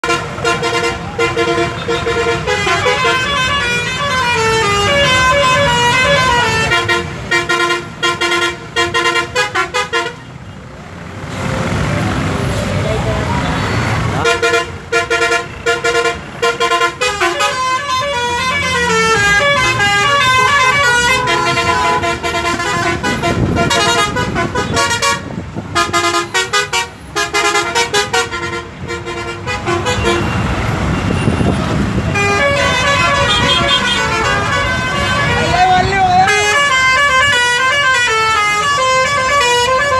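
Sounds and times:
multi-tone musical bus horns: 0:00.0 - 0:10.7, 0:13.4 - 0:39.9
diesel bus engines rumbling: 0:00.0 - 0:39.9.

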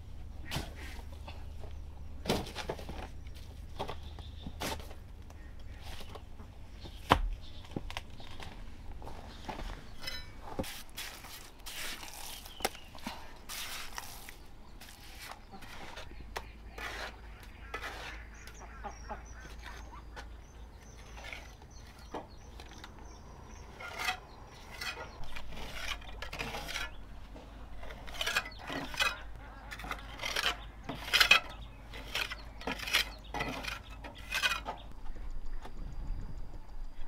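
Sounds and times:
trowel scraping mortar on brick: 0:13.5 - 0:18.6, 0:23.7 - 0:27.0, 0:27.8 - 0:34.9.

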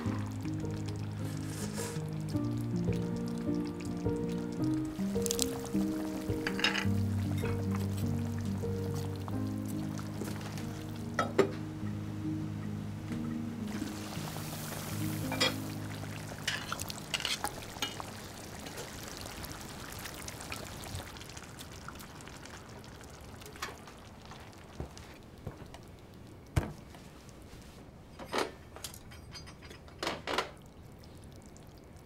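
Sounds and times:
stew bubbling and hissing: 0:00.0 - 0:11.9, 0:13.4 - 0:27.9, 0:30.6 - 0:32.0
tableware clinking: 0:06.4 - 0:07.8, 0:11.2 - 0:11.6, 0:15.2 - 0:15.7, 0:16.4 - 0:18.0, 0:28.1 - 0:30.4.

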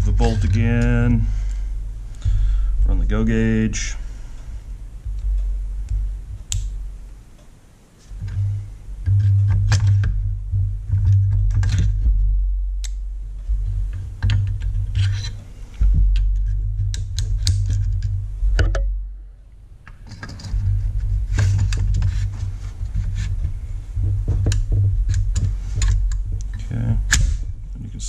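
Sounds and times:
steady low hum: 0:00.0 - 0:28.0.

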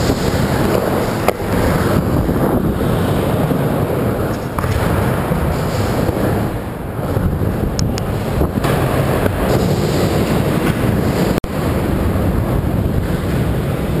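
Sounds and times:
skateboard wheels rolling: 0:00.0 - 0:14.0
wind buffeting microphone: 0:00.0 - 0:14.0.

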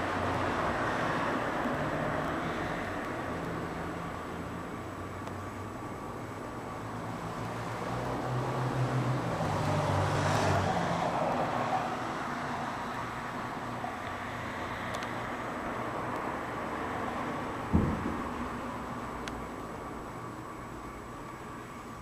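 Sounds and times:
background traffic noise: 0:00.0 - 0:22.0
vehicle passing: 0:06.9 - 0:19.0.

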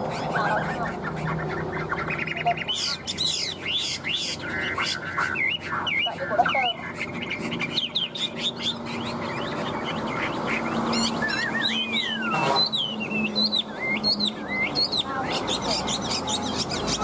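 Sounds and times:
bird singing whistled notes: 0:10.9 - 0:17.0.

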